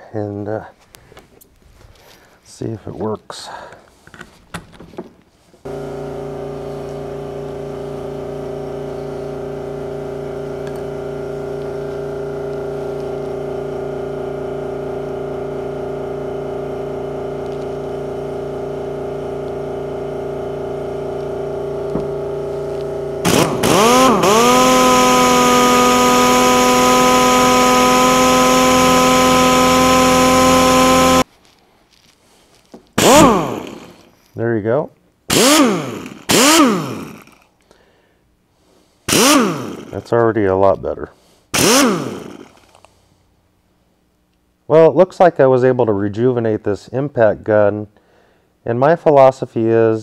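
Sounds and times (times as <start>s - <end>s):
air exhaust hiss: 5.4s - 15.7s, 36.2s - 40.2s
air impact wrench whine: 5.6s - 31.3s, 33.0s - 34.2s, 35.3s - 37.8s, 39.0s - 40.2s, 41.2s - 42.9s
machine hum: 5.6s - 31.3s, 33.0s - 34.2s, 35.3s - 37.5s, 39.1s - 40.1s, 41.6s - 42.8s.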